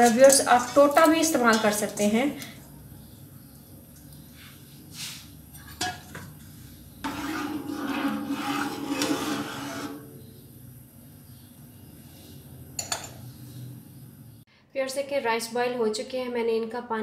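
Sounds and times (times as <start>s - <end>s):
utensil scraping pan: 5.6s - 10.3s
stirring rice in water: 7.0s - 10.1s.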